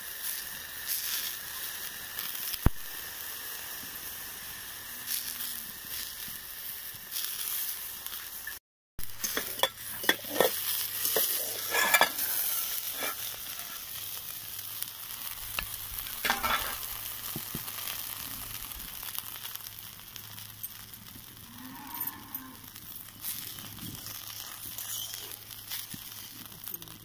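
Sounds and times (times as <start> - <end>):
batter sizzling in a pan: 0.0 - 27.0
metal lid and spatula clinks: 9.2 - 12.2
cow mooing faintly: 21.4 - 22.7.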